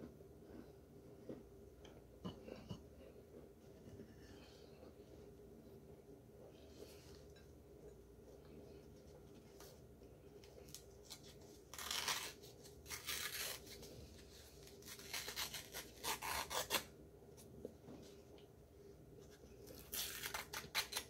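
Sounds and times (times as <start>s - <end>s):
paper rustling and tearing: 10.6s - 16.9s, 19.7s - 21.0s.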